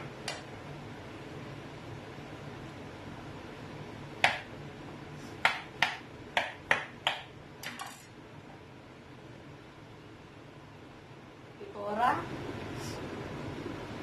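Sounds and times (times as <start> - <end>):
knife chopping on wooden board: 4.2 - 4.5, 5.4 - 7.3.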